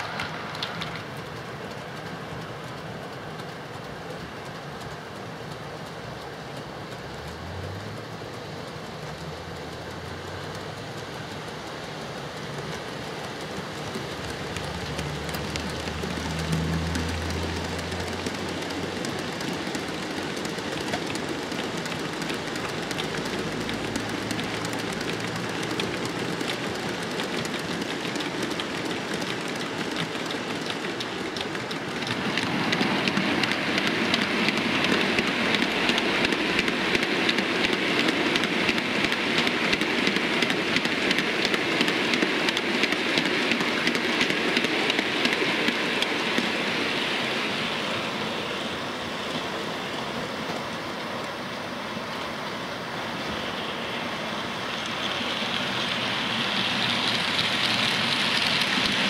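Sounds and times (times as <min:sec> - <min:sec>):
model locomotive humming: 0:00.0 - 0:59.0
model train wagons clicking over rail joints: 0:00.0 - 0:59.0.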